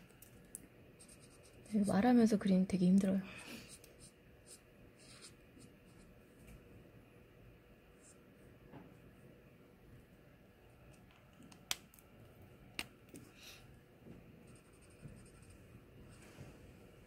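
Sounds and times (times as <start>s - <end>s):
marker scratching on paper: 1.0s - 2.0s, 3.6s - 6.1s, 14.5s - 15.6s.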